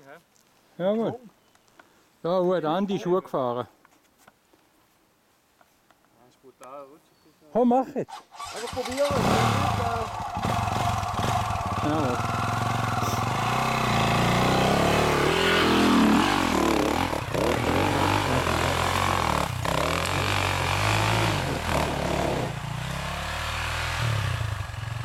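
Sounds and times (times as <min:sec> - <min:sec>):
dirt bike engine revving: 0:08.3 - 0:25.0.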